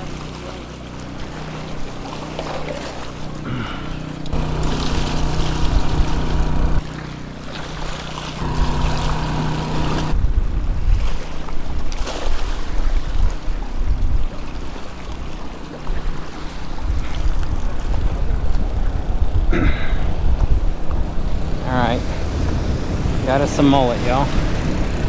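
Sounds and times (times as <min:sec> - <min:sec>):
low hum: 0:00.1 - 0:11.7, 0:13.5 - 0:25.0
wind buffeting microphone: 0:08.4 - 0:15.3, 0:15.9 - 0:25.0.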